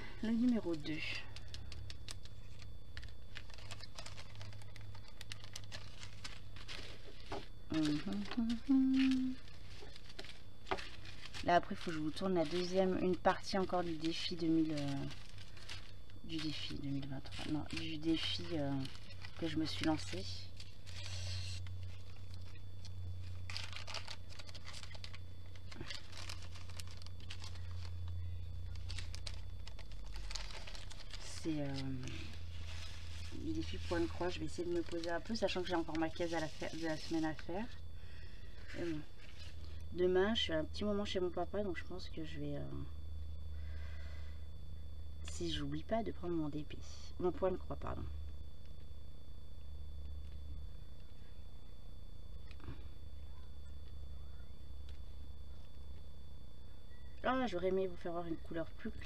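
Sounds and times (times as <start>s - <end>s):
plastic bags rustling: 0.0s - 37.8s
low steady hum: 0.0s - 59.0s.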